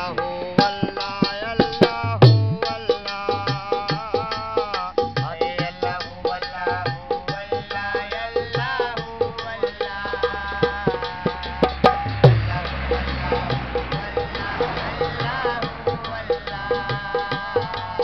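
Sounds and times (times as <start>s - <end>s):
hand drum beating: 0.0s - 18.0s
steady drone: 10.6s - 17.2s.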